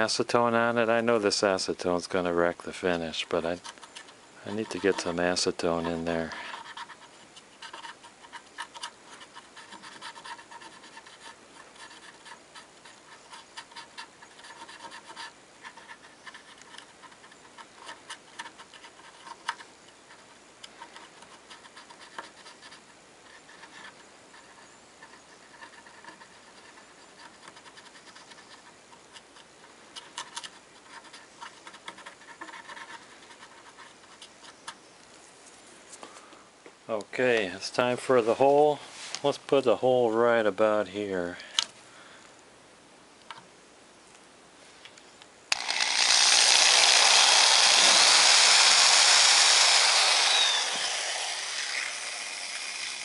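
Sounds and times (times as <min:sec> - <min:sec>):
cotton swab scrubbing wood: 0:01.2 - 0:34.6.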